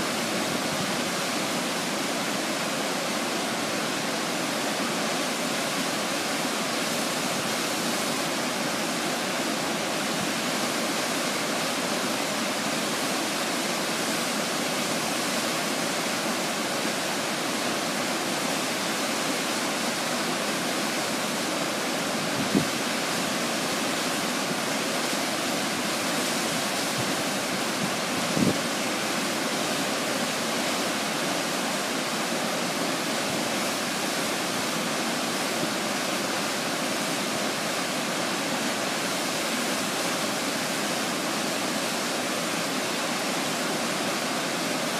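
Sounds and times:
waterfall rushing: 0.0s - 44.9s.

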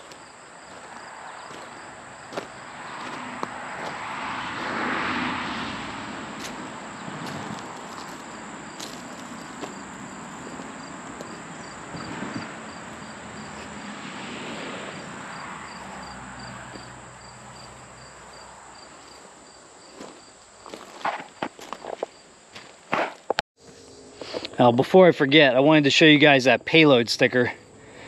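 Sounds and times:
insects chirping: 0.0s - 24.8s, 25.8s - 28.0s
outdoor background hiss: 5.5s - 28.0s
steady high drone: 23.6s - 25.7s.

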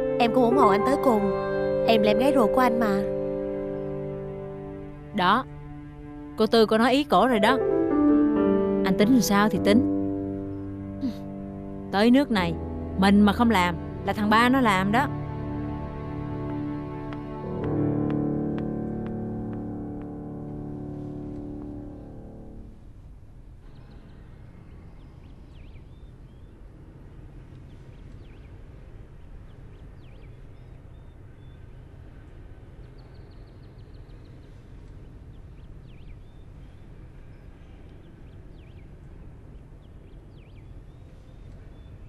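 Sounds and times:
music: 0.0s - 23.0s.

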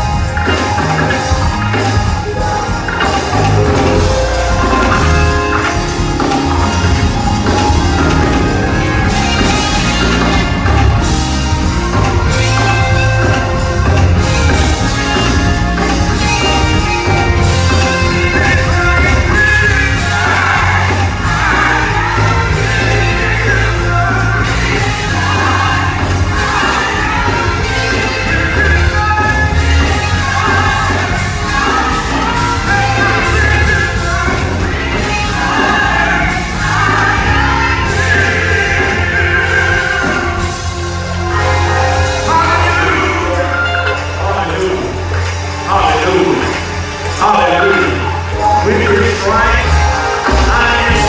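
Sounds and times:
gospel music with heavy bass: 0.0s - 51.0s
person singing: 47.2s - 51.0s.

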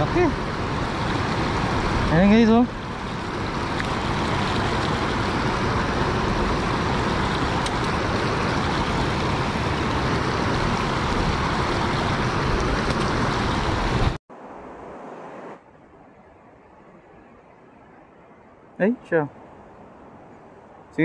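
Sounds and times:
river water flowing over ledge: 0.0s - 15.6s.

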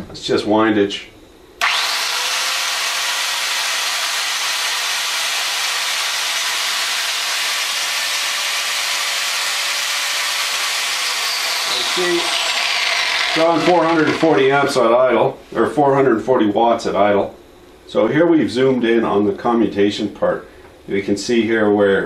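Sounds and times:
angle grinder motor whining: 1.6s - 14.8s.

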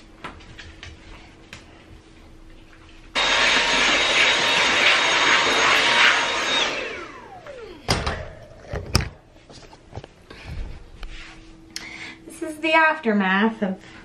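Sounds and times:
handheld vacuum whining: 3.2s - 9.1s.

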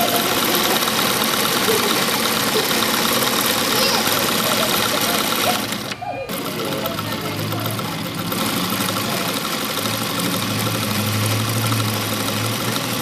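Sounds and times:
sewing machine running: 0.0s - 13.0s.

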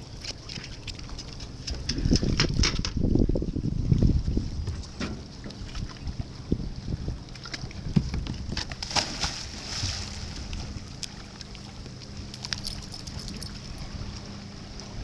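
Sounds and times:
water sloshing: 0.0s - 15.0s
wind rumble on microphone: 1.0s - 15.0s
dog splashing into water: 8.8s - 10.4s.

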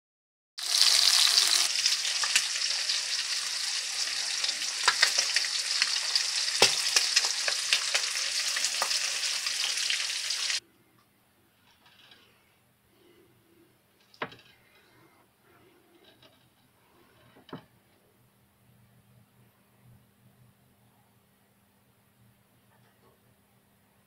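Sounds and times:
meat sizzling in frying pan: 0.6s - 10.6s.

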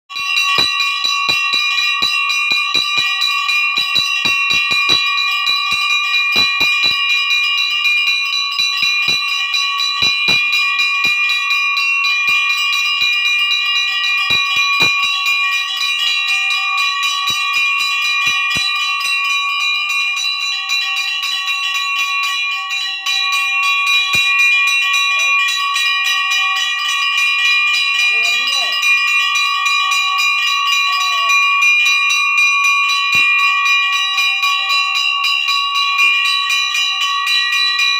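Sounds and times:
bell ringing rapidly: 0.1s - 37.9s
scattered knocks: 0.5s - 7.1s, 10.0s - 11.3s, 14.2s - 15.2s, 17.2s - 18.8s.

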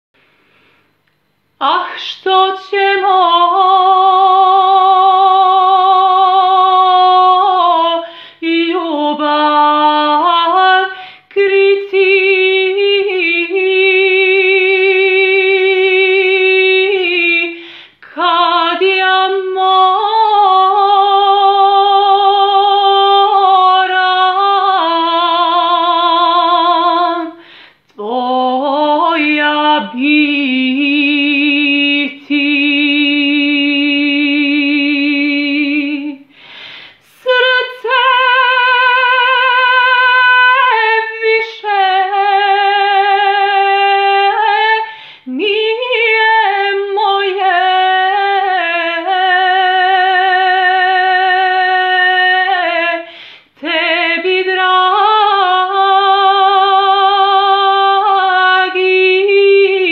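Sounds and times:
singer breathing: 0.2s - 1.0s, 8.0s - 8.4s, 11.0s - 11.3s, 17.6s - 18.0s, 27.4s - 27.9s, 36.2s - 37.1s, 44.9s - 45.3s, 53.0s - 53.6s
woman singing unaccompanied: 1.6s - 36.4s, 37.0s - 59.9s.

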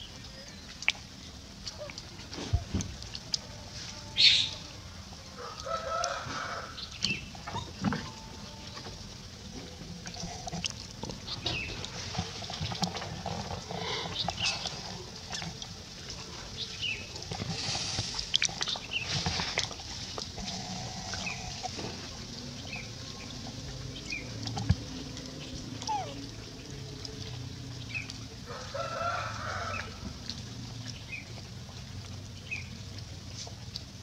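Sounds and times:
animal calls and chirps: 4.2s - 4.6s, 25.7s - 26.3s
sharp high-pitched animal call: 25.9s - 26.2s.

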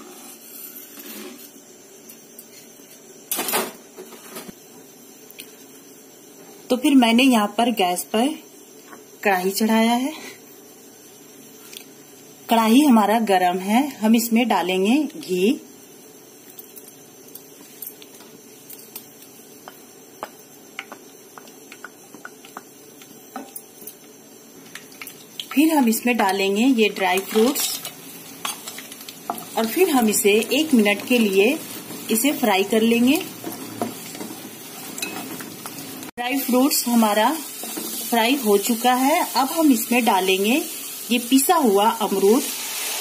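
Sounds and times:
ghee crackling in a pan: 15.2s - 43.0s.

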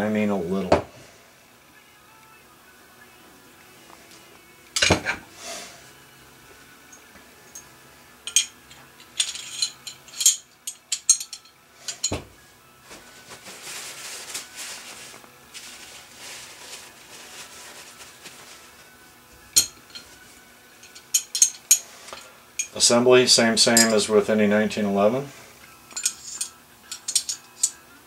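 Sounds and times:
metal parts clicking and clinking: 8.2s - 12.2s, 19.6s - 20.2s, 20.8s - 22.8s, 23.7s - 24.0s, 25.9s - 27.8s
cloth rag rustling: 11.8s - 19.1s.

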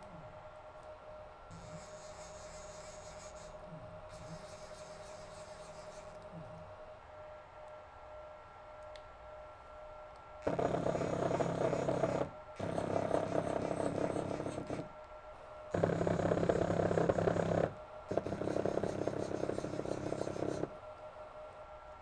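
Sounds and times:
stepper motor buzzing hum: 1.5s - 6.4s, 10.4s - 14.9s, 15.7s - 20.8s.

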